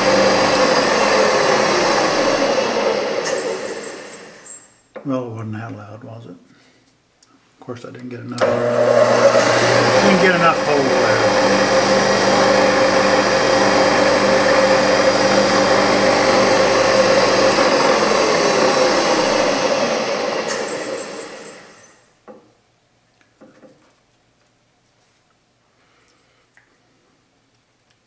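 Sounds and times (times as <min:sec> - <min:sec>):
milling machine spindle whine: 0:00.0 - 0:04.7, 0:08.4 - 0:22.0.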